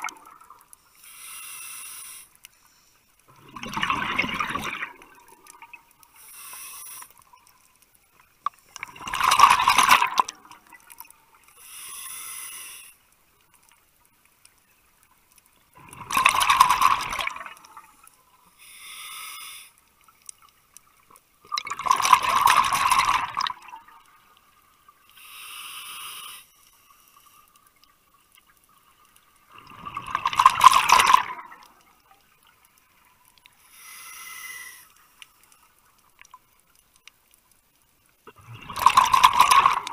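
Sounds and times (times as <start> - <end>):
inhalation hisses: 0.8 - 3.0, 6.1 - 7.2, 11.5 - 13.0, 18.5 - 19.8, 25.1 - 27.5, 33.6 - 35.2
bubbling underwater exhalations: 3.3 - 5.3, 21.5 - 23.8, 38.3 - 39.9.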